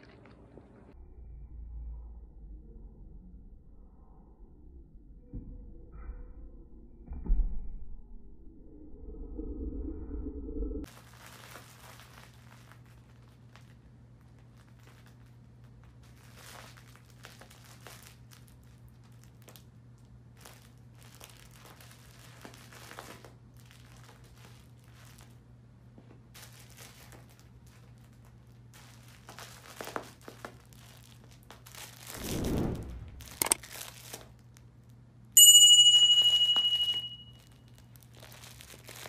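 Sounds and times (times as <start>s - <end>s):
steady low hum: 0.0s - 10.9s
toy crinkling and rustling: 10.9s - 19.7s, 26.4s - 32.2s, 37.3s - 39.0s.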